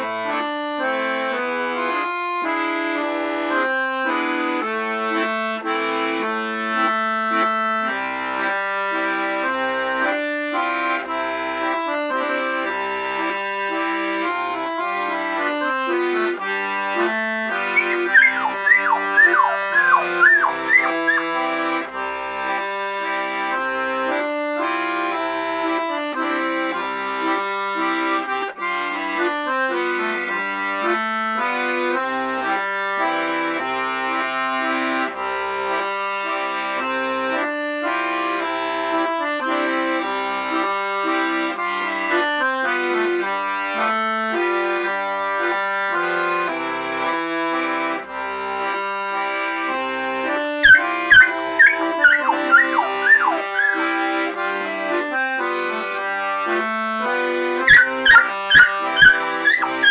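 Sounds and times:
accordion playing a waltz: 0.0s - 59.9s
puppy yipping: 17.7s - 21.4s, 50.6s - 53.8s, 57.6s - 59.9s.

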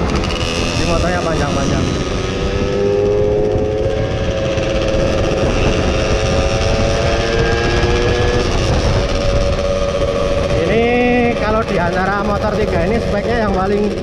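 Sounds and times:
two-stroke engine running: 0.0s - 14.0s
wind and road noise rumble: 0.0s - 14.0s.

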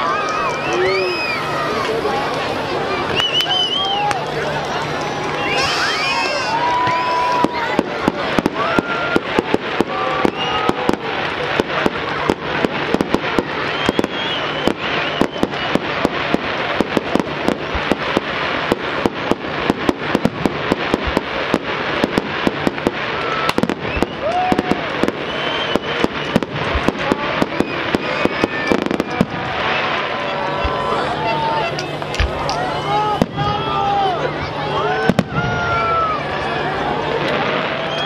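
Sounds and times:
fireworks bangs: 0.0s - 38.0s.

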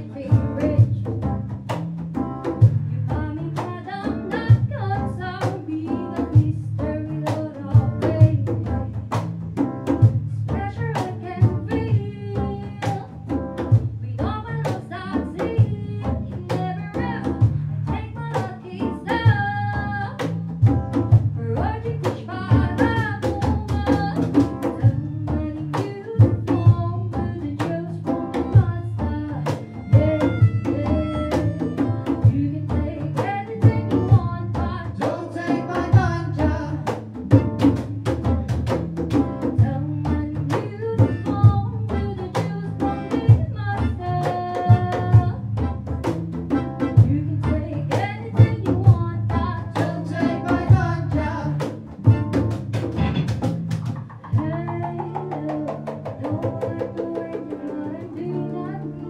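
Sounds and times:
woman singing: 0.0s - 1.4s, 2.6s - 9.2s, 10.0s - 45.8s, 46.8s - 52.3s, 54.2s - 59.0s
steady drum beat: 0.0s - 56.9s
bass: 0.0s - 59.0s
electric guitar: 0.0s - 59.0s
hand drums: 0.0s - 59.0s
melodica: 29.5s - 32.0s.

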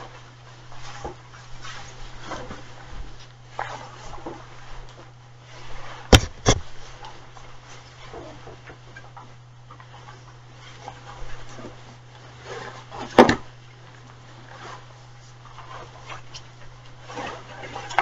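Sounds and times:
sharp knock: 6.1s - 6.6s.

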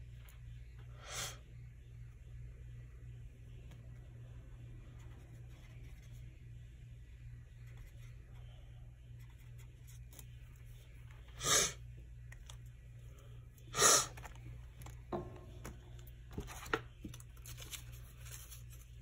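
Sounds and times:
loud bursts of breath: 0.9s - 1.4s, 11.4s - 11.8s, 13.7s - 14.2s.

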